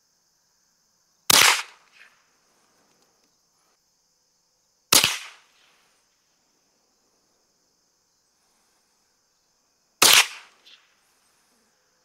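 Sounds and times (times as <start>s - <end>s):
rifle shots: 1.3s - 2.1s, 4.9s - 5.7s, 10.0s - 10.8s.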